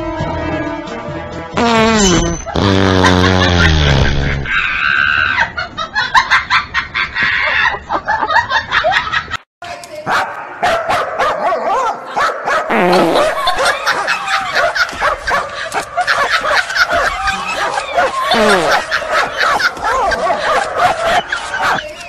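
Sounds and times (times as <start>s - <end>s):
dog barking and yipping: 10.1s - 22.0s
dog whining: 16.2s - 22.0s.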